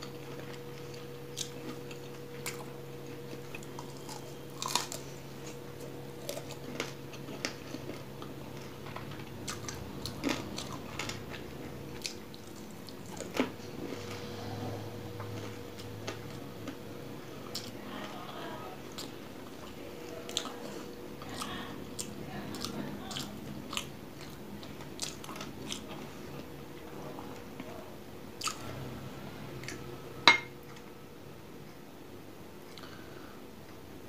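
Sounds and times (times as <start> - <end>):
wet chewing: 0.0 - 14.4, 15.2 - 26.5
glass bowl clink: 30.3 - 30.5.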